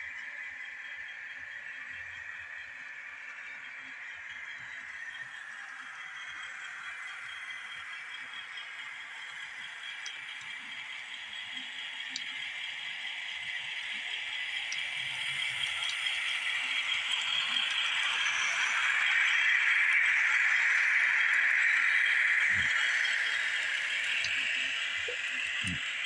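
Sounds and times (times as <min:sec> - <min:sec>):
model train wheels rattling: 0:05.7 - 0:26.0.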